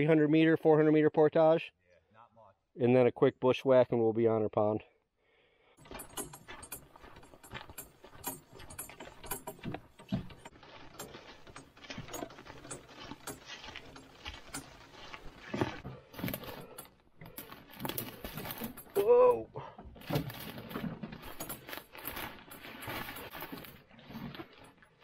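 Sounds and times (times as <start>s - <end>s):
strapped gear shifting and rattling: 5.8s - 19.1s, 19.8s - 25.0s
footsteps through brush: 10.5s - 16.7s, 20.1s - 25.0s.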